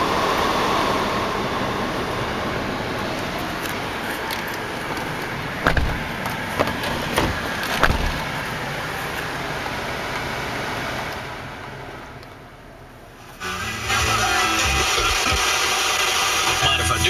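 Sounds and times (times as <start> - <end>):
air conditioning fan blowing: 0.0 - 13.5
short knocks: 5.6 - 8.4.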